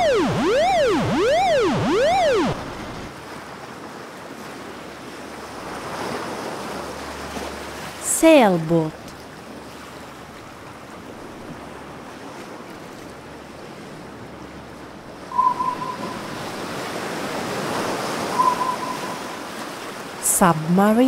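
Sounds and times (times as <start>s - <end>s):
high electronic beeps: 0.0s - 2.9s, 15.3s - 16.4s, 18.4s - 19.4s
rushing water: 0.0s - 20.7s
sea waves washing: 0.0s - 21.0s.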